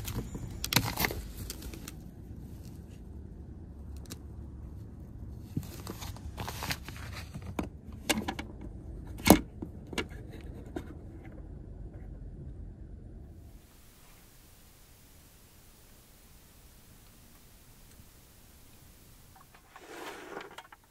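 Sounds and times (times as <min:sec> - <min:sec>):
fabric rustling: 0:19.4 - 0:20.9.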